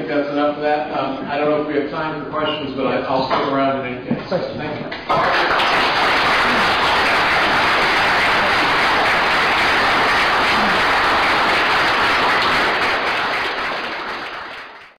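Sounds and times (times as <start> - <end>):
audience applauding: 5.1 - 14.9.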